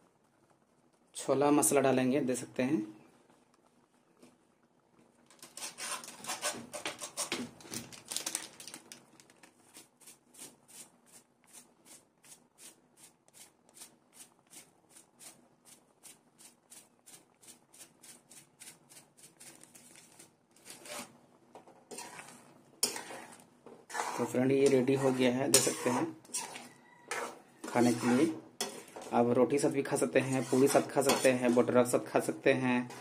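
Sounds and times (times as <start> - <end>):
cardboard packet rustling: 7.5 - 9.8, 19.3 - 20.9.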